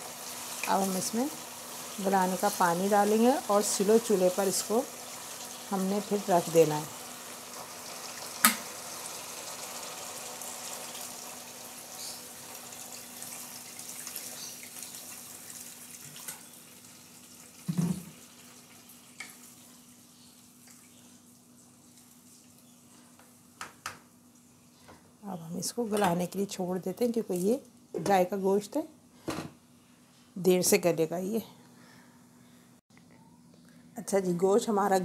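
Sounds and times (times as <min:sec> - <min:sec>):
meat sizzling in a pan: 0:00.0 - 0:22.5
knock: 0:17.7 - 0:18.1.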